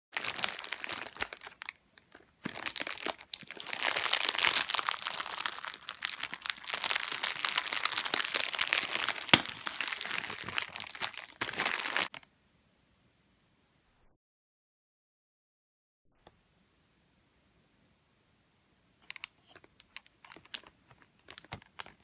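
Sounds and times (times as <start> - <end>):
foil wrapper crinkling: 0.2 - 12.2, 19.0 - 22.0.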